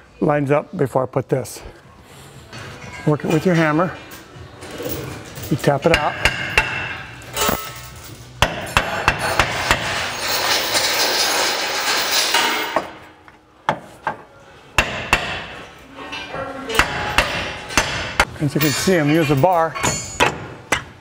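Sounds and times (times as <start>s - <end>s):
hammer striking metal: 5.8s - 7.8s, 8.4s - 10.1s, 14.8s - 15.6s, 16.7s - 20.9s.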